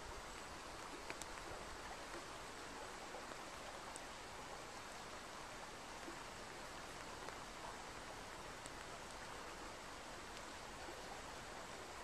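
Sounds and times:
tiny clicks: 0:00.8 - 0:01.5.

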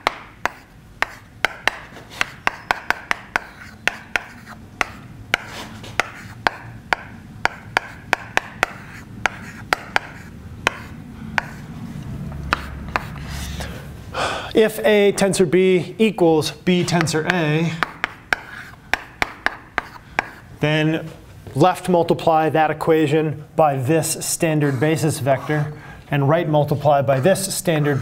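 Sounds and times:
chalk tapping on blackboard: 0:00.0 - 0:13.3, 0:16.8 - 0:20.4, 0:24.1 - 0:25.6
chalk scratching: 0:00.0 - 0:13.7, 0:16.8 - 0:20.4, 0:23.8 - 0:28.0.

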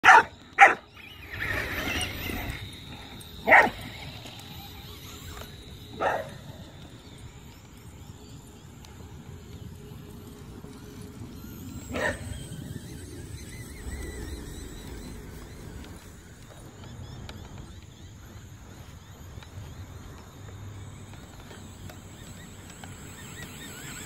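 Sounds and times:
dog barking: 0:00.0 - 0:00.8, 0:03.5 - 0:03.8, 0:06.0 - 0:06.4, 0:12.0 - 0:12.2.

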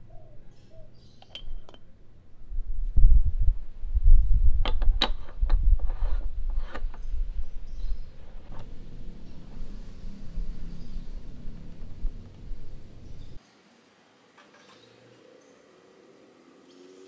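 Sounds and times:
metal clinks of moka pot: 0:01.2 - 0:01.8
low rubbing rumble: 0:05.3 - 0:13.4.

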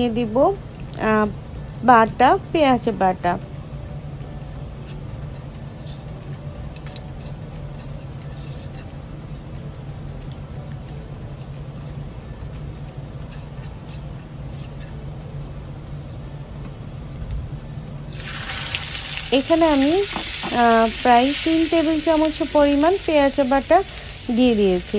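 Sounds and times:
steady low hum: 0:00.0 - 0:24.9
spatula stirring in pan: 0:07.2 - 0:09.1
seeds frying in hot oil: 0:18.1 - 0:24.9.

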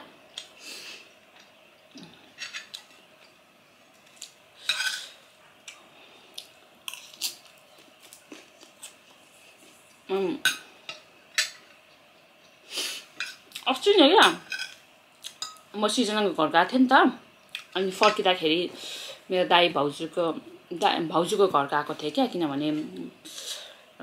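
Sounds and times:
cutlery scraping a ceramic plate: 0:04.6 - 0:05.2.

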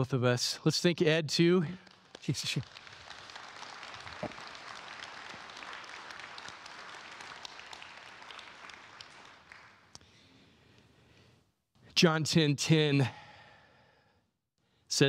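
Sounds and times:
crowd applauding: 0:01.8 - 0:10.0.

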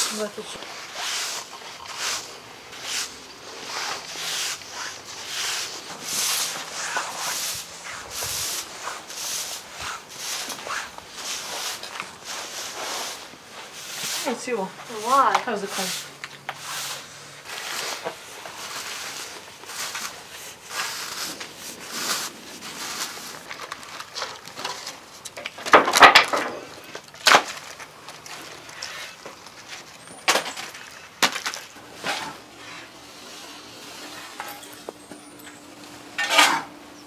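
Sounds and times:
rustling and scraping: 0:00.0 - 0:36.8
wood scraps clattering: 0:17.5 - 0:33.0.

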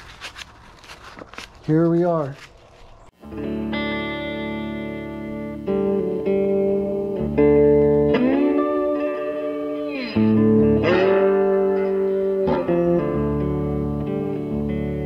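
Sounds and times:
electric guitar music: 0:03.2 - 0:15.0.

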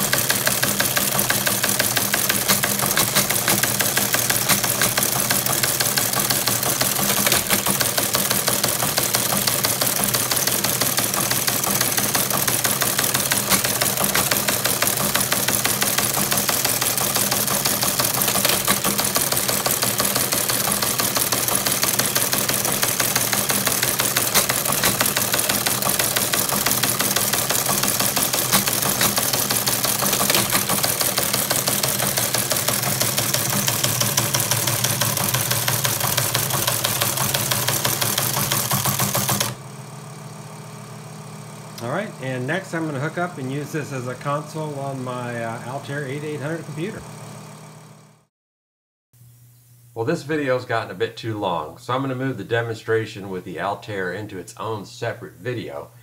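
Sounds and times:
teleprinter typebars clattering: 0:00.0 - 0:39.6
motor hum: 0:00.0 - 0:48.3.

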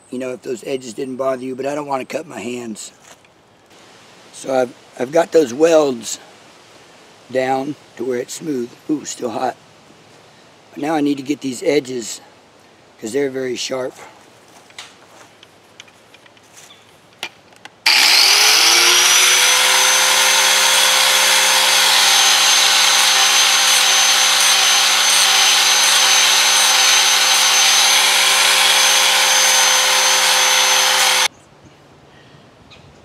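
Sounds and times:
angle grinder grinding steel: 0:17.9 - 0:31.3.

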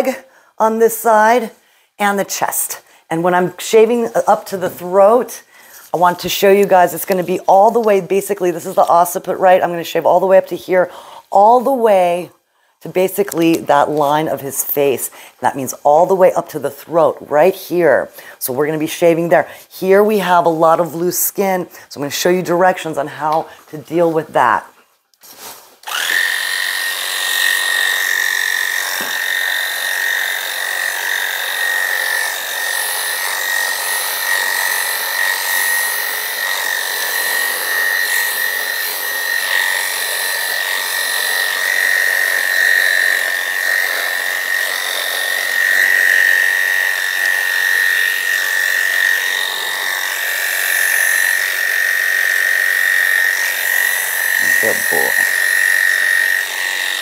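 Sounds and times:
electric clippers buzzing: 0:25.8 - 0:57.0.

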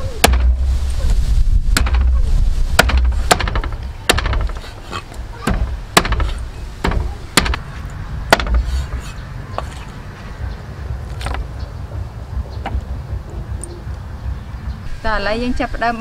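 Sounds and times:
cleaver chopping on wooden block: 0:01.8 - 0:02.1, 0:02.8 - 0:04.6, 0:05.4 - 0:07.7, 0:08.3 - 0:09.7.

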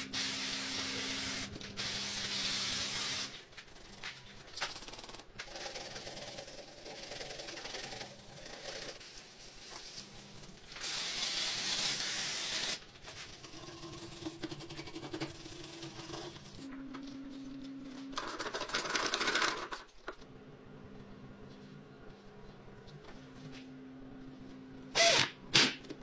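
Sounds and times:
steady low hum: 0:19.9 - 0:25.0.

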